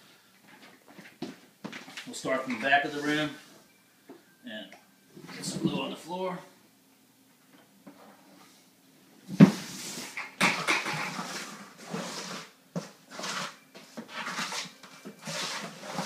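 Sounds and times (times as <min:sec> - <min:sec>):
trowel scraping floor: 0:09.4 - 0:16.0.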